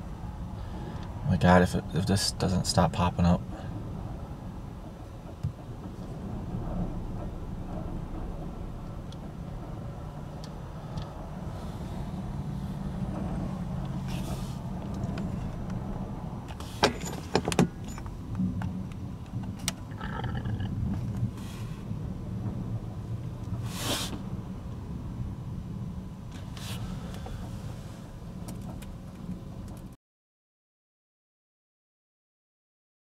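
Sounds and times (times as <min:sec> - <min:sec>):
engine idling: 0:00.0 - 0:29.1
sharp clicks and knocks: 0:16.5 - 0:19.9
brief hiss: 0:23.6 - 0:24.2.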